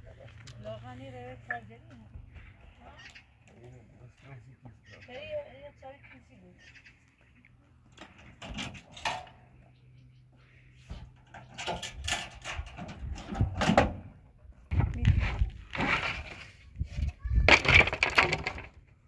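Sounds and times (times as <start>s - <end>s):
wooden boards knocking and clattering: 17.4s - 18.9s.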